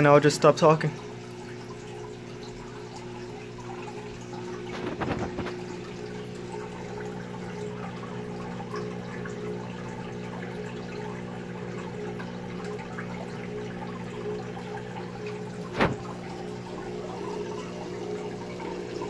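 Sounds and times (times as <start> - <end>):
low electrical hum: 0.0 - 19.0
trickle of running water: 0.0 - 19.0
brief rustle: 4.6 - 5.7.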